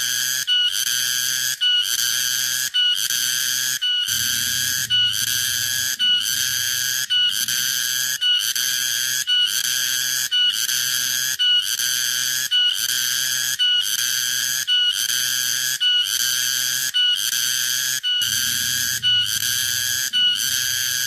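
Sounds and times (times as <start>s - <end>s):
cicada shrill buzzing call: 1.4s - 11.4s, 14.3s - 21.0s.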